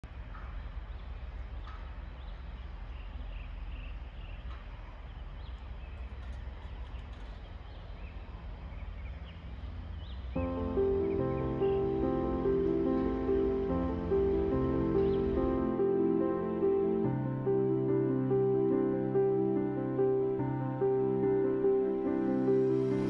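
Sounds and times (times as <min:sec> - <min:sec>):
small birds chirping: 0:00.0 - 0:23.0
music: 0:10.3 - 0:23.0.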